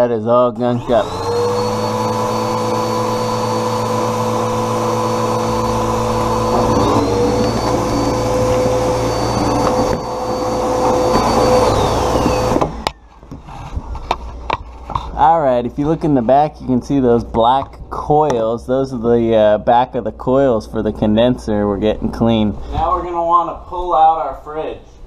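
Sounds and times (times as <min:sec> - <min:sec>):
vacuum motor winding down: 0:00.6 - 0:13.1
vacuum cleaner whining: 0:00.6 - 0:14.3.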